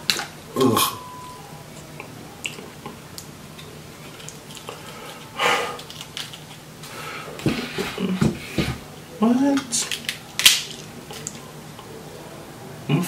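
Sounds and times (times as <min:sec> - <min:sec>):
fortune cookie crackling: 0:01.7 - 0:12.4
loud breath: 0:04.7 - 0:05.9, 0:06.8 - 0:08.8.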